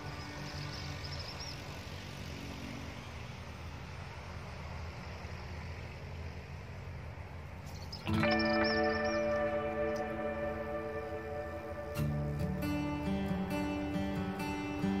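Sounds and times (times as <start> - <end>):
low outdoor rumble: 0.0 - 15.0
background music: 8.0 - 15.0.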